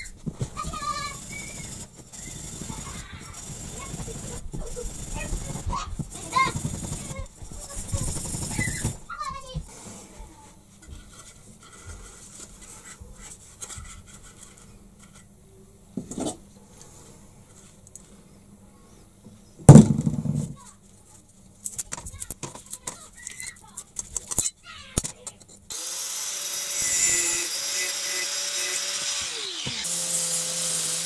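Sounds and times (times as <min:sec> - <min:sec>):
scraping and handling noises: 0:00.0 - 0:18.4, 0:19.6 - 0:25.7
knock: 0:19.7 - 0:20.6
loud thump: 0:19.7 - 0:20.6.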